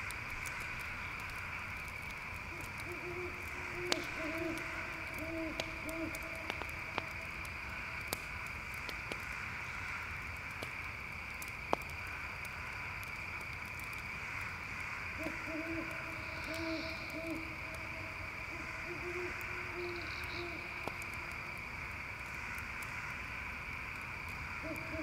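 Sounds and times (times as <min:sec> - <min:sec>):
campfire crackling: 0:00.0 - 0:25.0
crickets chirping: 0:00.0 - 0:25.0
owl hooting: 0:02.5 - 0:06.5, 0:15.2 - 0:20.9, 0:24.6 - 0:25.0.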